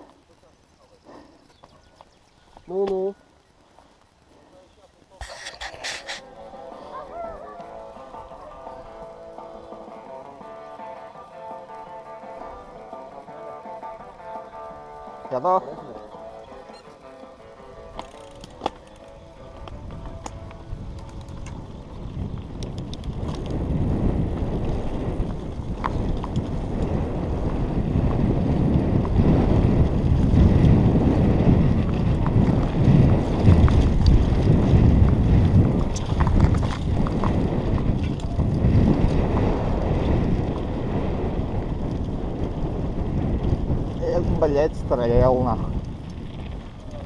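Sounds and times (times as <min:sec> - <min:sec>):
mountain bike rolling on dirt: 0:00.0 - 0:05.2, 0:05.9 - 0:47.0
bike clicks and rattles: 0:16.6 - 0:47.0
wind rushing over microphone: 0:17.8 - 0:47.0.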